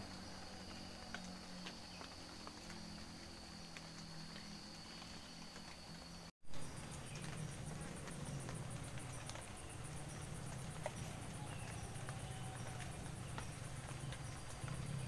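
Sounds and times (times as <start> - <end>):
insects chirping trill: 0.0 - 15.0
light ticks: 7.1 - 15.0.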